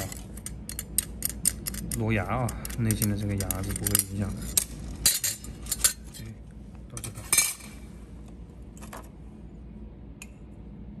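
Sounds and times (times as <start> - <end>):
metal parts clattering on workbench: 3.4 - 6.1, 7.0 - 7.8.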